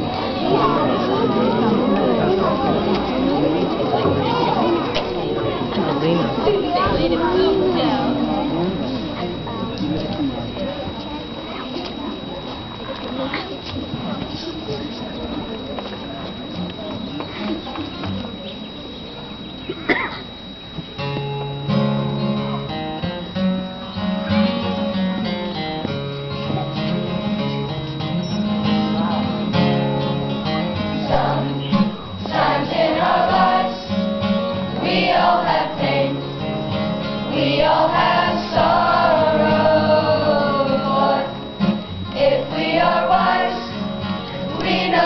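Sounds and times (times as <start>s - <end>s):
children's choir singing: 0.0s - 9.8s, 30.9s - 45.0s
acoustic guitar chords: 0.0s - 45.0s.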